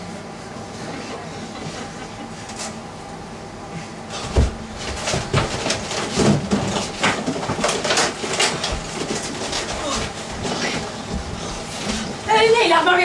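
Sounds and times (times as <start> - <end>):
knocks and clatter: 4.2 - 12.2.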